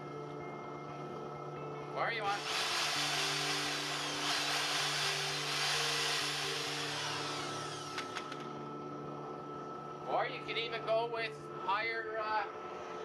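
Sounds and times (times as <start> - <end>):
power tool whirring: 2.3 - 8.6.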